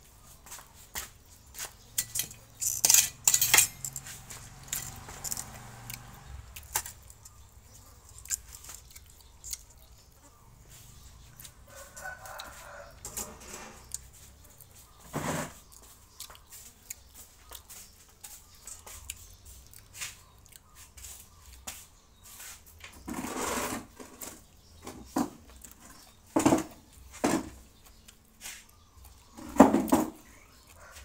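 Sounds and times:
person chewing: 4.0s - 12.9s, 13.8s - 15.0s, 15.6s - 21.6s, 27.8s - 29.4s.

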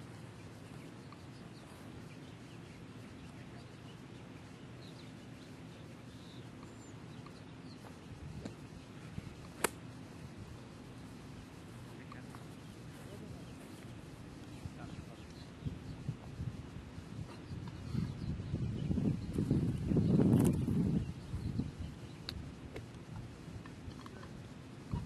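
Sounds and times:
outdoor background noise: 0.0s - 25.0s
golf club striking ball: 9.6s - 9.8s.

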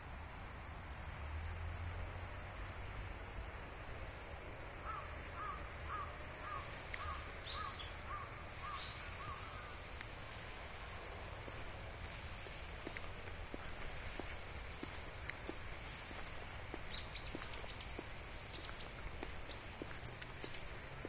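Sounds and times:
outdoor background noise: 0.0s - 21.0s
crow cawing: 4.8s - 9.7s
high bird chirps: 5.4s - 9.5s, 16.9s - 19.8s.

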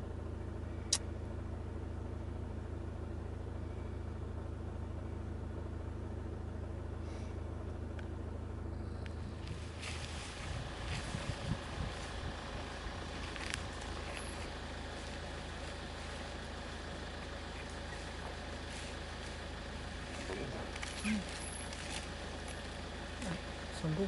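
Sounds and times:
car engine idling: 0.0s - 24.0s
uneven low rumbling: 0.0s - 24.0s
sharp click: 0.9s - 1.1s.

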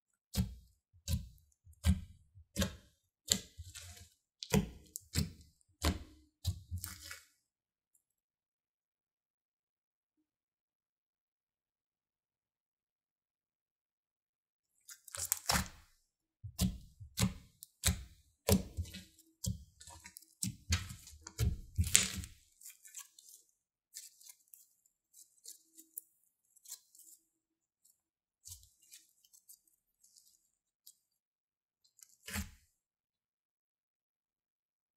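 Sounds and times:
slime squelching: 0.3s - 7.4s, 14.8s - 31.2s, 31.9s - 32.6s
slime crackling: 14.9s - 15.7s, 19.9s - 25.9s.

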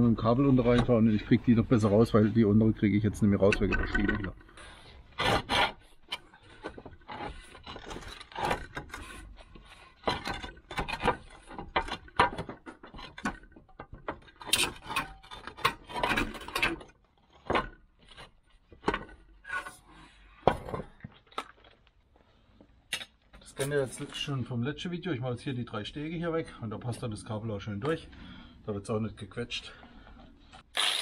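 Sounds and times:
roof tiles scraping and clinking: 3.4s - 24.3s.

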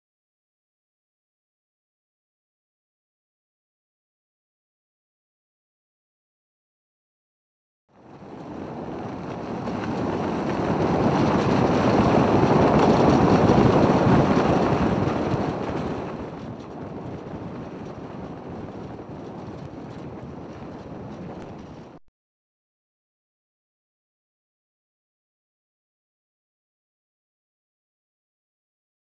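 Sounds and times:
wind and road rush from car: 8.0s - 22.0s.

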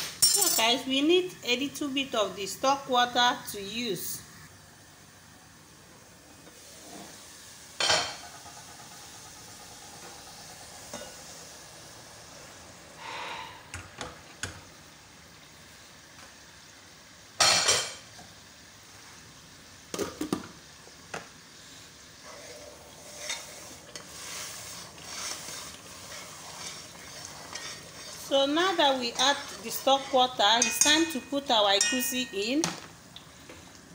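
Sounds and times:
oil sizzling: 0.0s - 33.9s
ladle scraping a pot: 22.2s - 32.0s
pot lids and utensils clanking: 26.4s - 32.8s.

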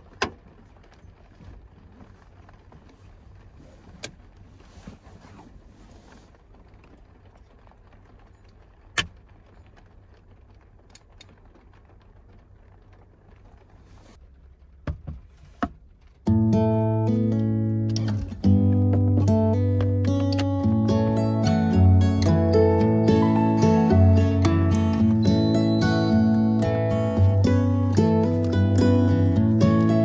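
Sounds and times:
low steady hum: 0.0s - 30.0s
acoustic guitar music: 16.2s - 30.0s.

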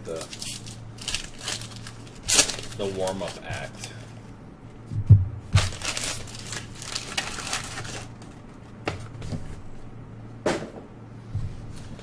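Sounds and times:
card pack wrapper tearing: 0.1s - 3.9s, 5.6s - 8.4s.

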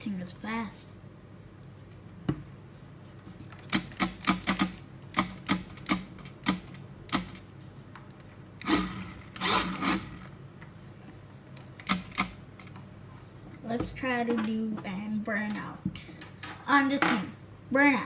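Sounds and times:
toy car motor clattering: 8.6s - 10.3s.

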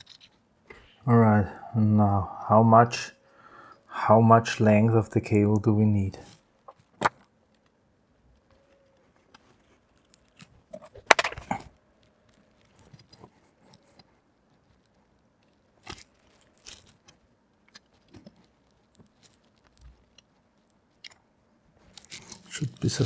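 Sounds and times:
wire rustling and clicking: 6.2s - 23.0s.

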